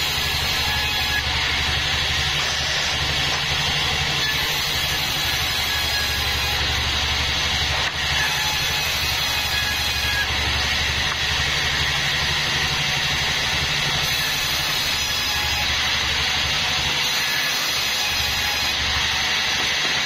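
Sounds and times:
band saw running: 0.0s - 20.0s
low hum: 10.0s - 14.6s.

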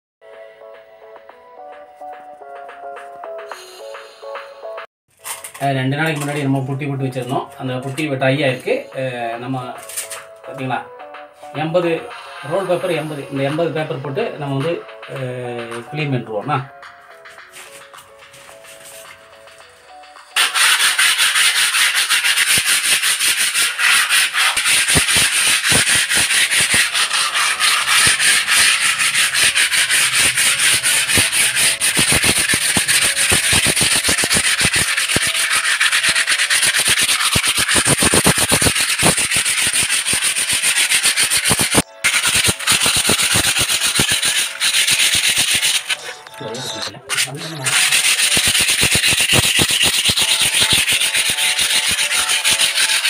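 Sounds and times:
sandpaper scratching on wall: 12.0s - 13.6s, 20.4s - 46.3s, 47.1s - 53.0s.

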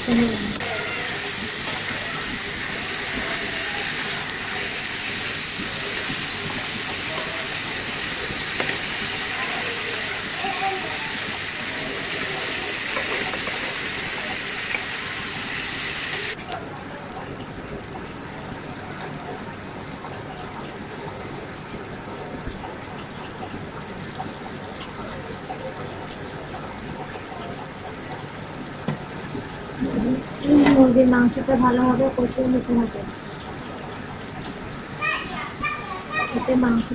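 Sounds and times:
chicken sizzling in a pan: 0.0s - 16.4s.

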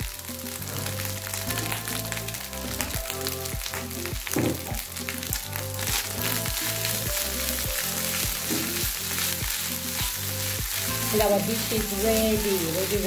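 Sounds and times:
background music with a beat: 0.0s - 13.0s
fried rice sizzling in a pan: 0.0s - 13.0s.

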